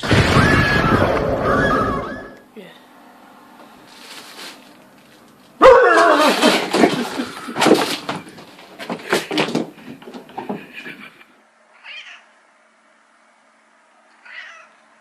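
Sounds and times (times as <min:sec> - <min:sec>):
cats yowling and screeching: 0:00.0 - 0:02.4, 0:05.6 - 0:06.7, 0:11.8 - 0:12.3, 0:14.2 - 0:14.8.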